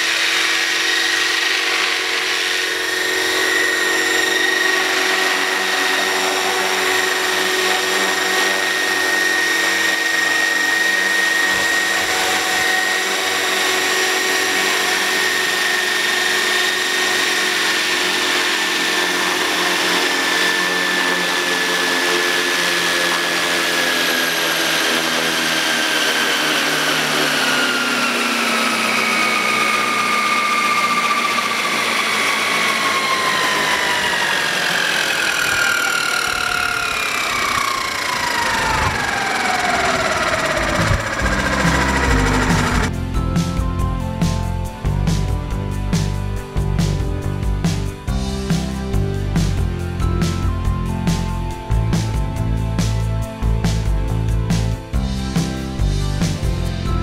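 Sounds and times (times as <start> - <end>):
rc helicopter motor whining: 0.0 - 44.4.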